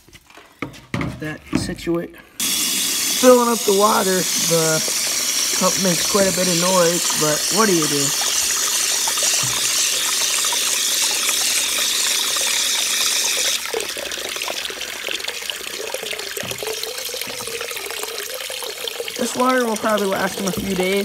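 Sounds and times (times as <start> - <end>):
tap water splashing into plastic: 3.3 - 12.6, 15.3 - 21.0.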